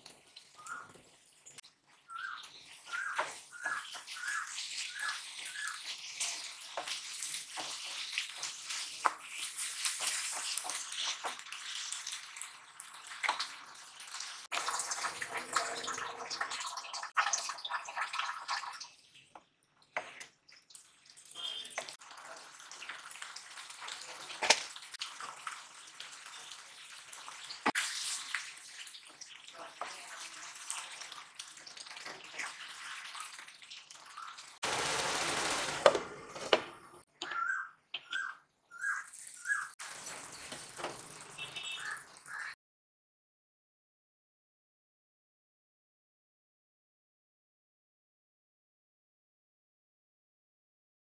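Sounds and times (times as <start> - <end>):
food sizzling in a frying pan: 0.0 - 19.0, 20.0 - 35.5, 38.9 - 42.5
curry bubbling: 0.0 - 19.2
water pouring into pan: 2.3 - 19.0, 20.6 - 36.3, 39.0 - 42.6
wooden spatula scraping a pan: 2.6 - 11.4.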